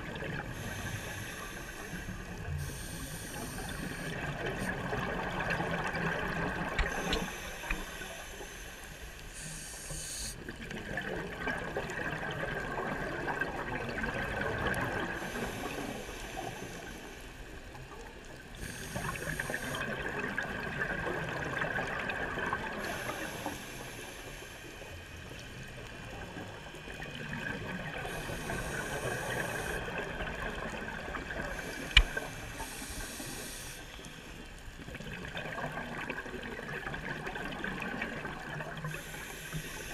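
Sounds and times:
regulator inhale hiss: 0.4 - 4.8, 6.8 - 10.5, 15.2 - 17.8, 18.5 - 19.9, 22.7 - 25.6, 28.0 - 30.1, 30.7 - 34.5, 38.8 - 39.9.

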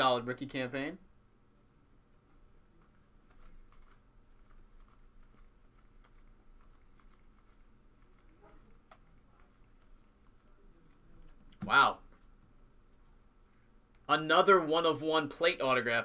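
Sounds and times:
trading cards being flipped: 3.2 - 10.4.

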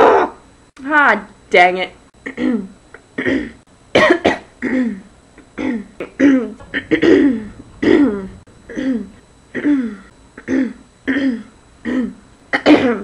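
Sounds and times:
woman clearing throat: 2.2 - 8.1, 8.7 - 13.0.

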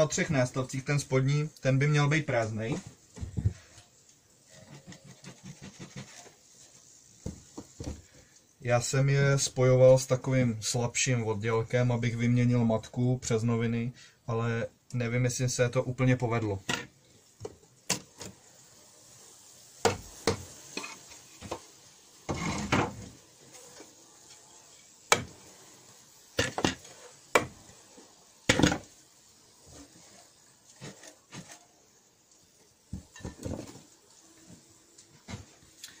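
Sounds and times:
metal scraping on wood: 4.4 - 6.5, 22.3 - 24.5, 29.7 - 31.7.

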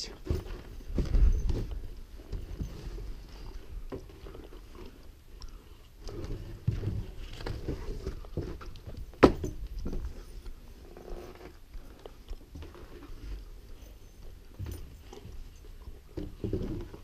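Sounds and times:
knocks on wooden deck: 9.2 - 9.6.

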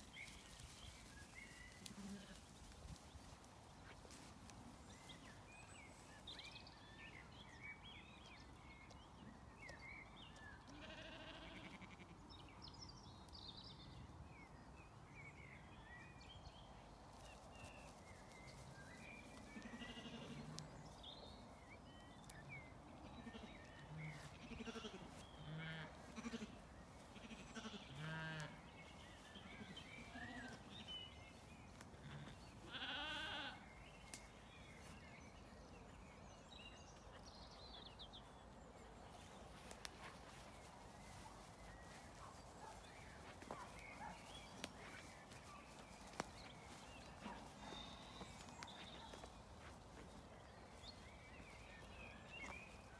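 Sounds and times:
sheep bleating: 10.7 - 12.1, 19.6 - 20.5, 24.3 - 26.6, 27.2 - 28.5, 32.0 - 33.6.

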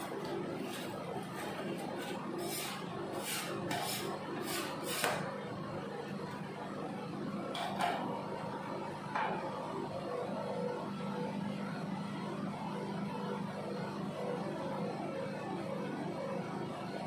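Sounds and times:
metal spatulas scraping and tapping: 0.6 - 5.2.

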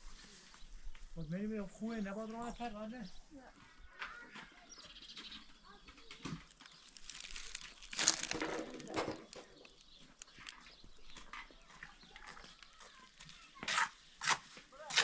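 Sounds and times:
faint clicks and scrapes: 3.6 - 14.6.

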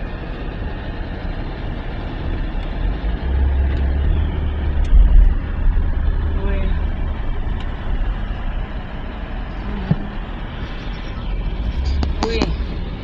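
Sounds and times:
traffic rumble heard from car: 0.0 - 13.0.

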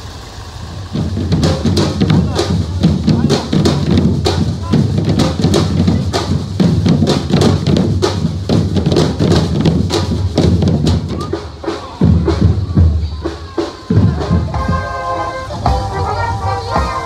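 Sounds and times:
bass drums thudding: 0.9 - 13.2
rapid snare pattern: 1.0 - 12.6.

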